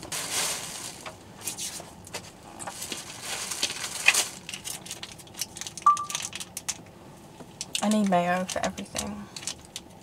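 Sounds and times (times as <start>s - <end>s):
paper wrappers rustling and crinkling: 0.0s - 6.8s
short high tone: 5.9s - 6.2s.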